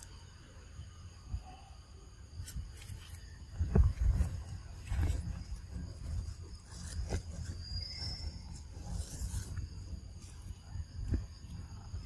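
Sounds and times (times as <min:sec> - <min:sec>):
faint scrapes and clicks: 0:02.4 - 0:11.7.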